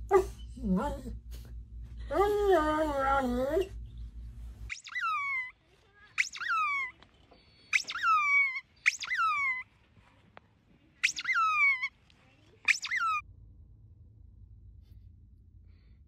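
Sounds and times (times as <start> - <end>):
squeaky ball toy squeaking: 4.7 - 5.5, 6.2 - 7.0, 7.7 - 9.6, 11.0 - 12.0, 12.7 - 13.2.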